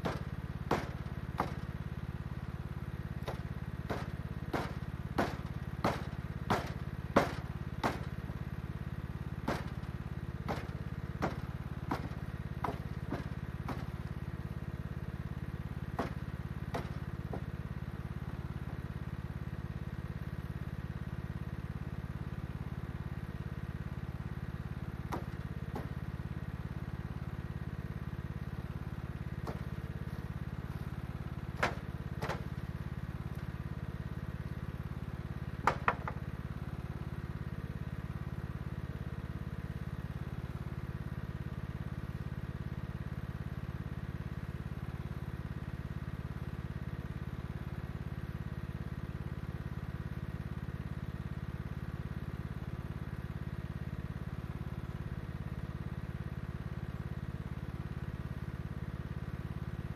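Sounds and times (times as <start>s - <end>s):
hatchet chopping branches: 0.0s - 19.2s, 25.0s - 26.4s, 27.8s - 34.6s, 35.5s - 36.8s
lawn tractor engine idling: 0.0s - 59.9s.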